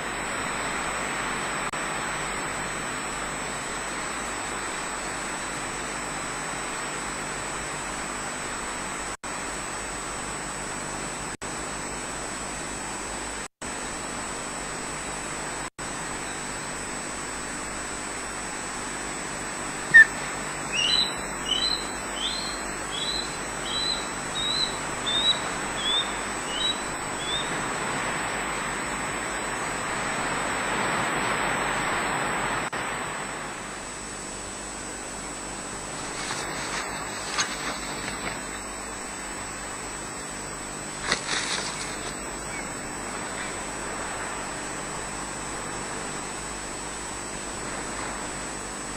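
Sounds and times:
steady hiss: 15.9s - 48.9s
osprey calling: 19.8s - 27.8s, 36.0s - 39.3s, 41.0s - 43.8s.

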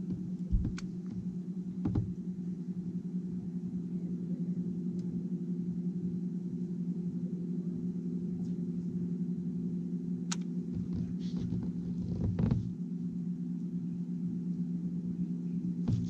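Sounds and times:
boat motor humming: 0.0s - 5.6s, 6.2s - 16.0s
sharp click: 10.3s - 10.5s.

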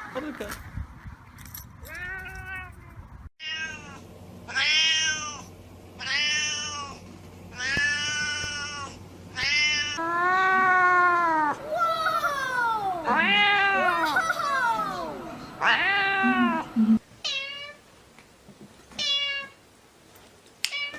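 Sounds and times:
cat meowing loudly: 1.9s - 2.8s, 3.4s - 7.0s, 7.6s - 11.6s, 13.0s - 14.1s, 15.6s - 17.8s
cat long drawn-out meow: 3.4s - 7.0s, 7.6s - 11.6s, 13.0s - 14.1s, 15.6s - 16.7s.

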